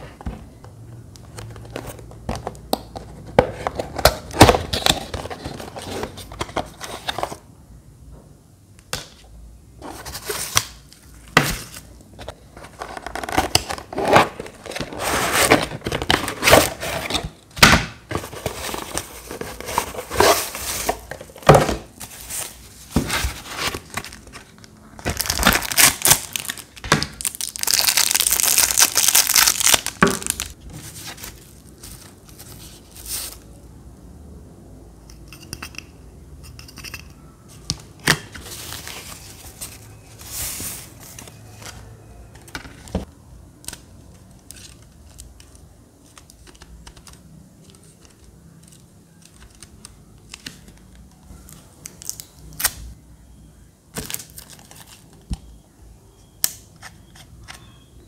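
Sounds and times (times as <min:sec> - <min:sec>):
packaging rustling and crinkling: 0:18.1 - 0:33.4.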